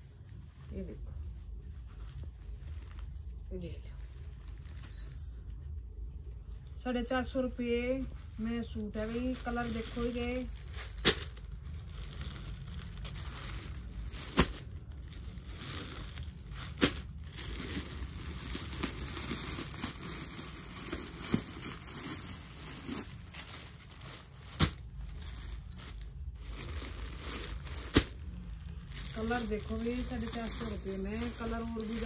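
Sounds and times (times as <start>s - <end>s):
plastic packaging crinkling: 8.8s - 32.0s.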